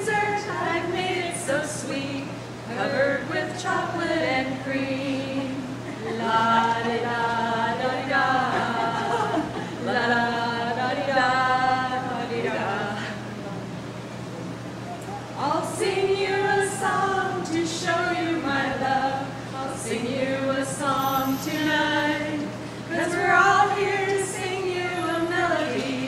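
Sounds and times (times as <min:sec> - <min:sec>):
women singing a cappella: 0:00.0 - 0:13.4, 0:15.4 - 0:26.0.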